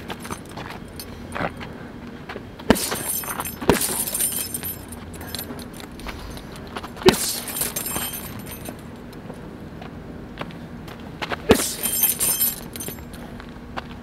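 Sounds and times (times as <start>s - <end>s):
chain jangling: 0.0s - 1.4s, 2.7s - 9.1s, 11.5s - 13.2s
punches thudding on heavy bag: 2.6s - 5.4s, 7.0s - 8.5s.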